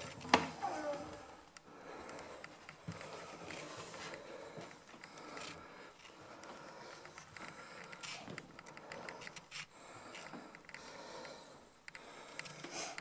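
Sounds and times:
person moving rustle: 2.2 - 10.6.

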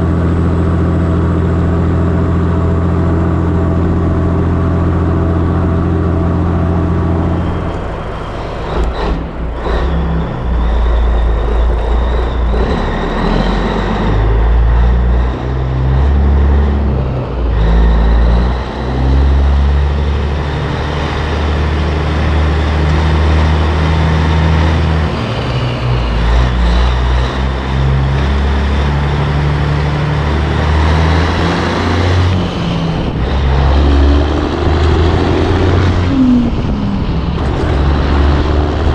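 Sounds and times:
road and trailer noise: 0.0 - 38.9
truck diesel engine running: 0.0 - 38.9.

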